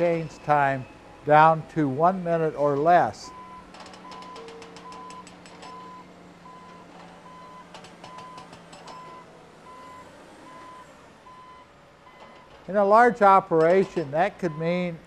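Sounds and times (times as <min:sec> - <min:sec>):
diesel machine humming: 0:00.0 - 0:15.0
backup alarm beeping: 0:03.2 - 0:12.4, 0:13.9 - 0:15.0
rattling clicks: 0:03.7 - 0:05.9, 0:13.6 - 0:14.1.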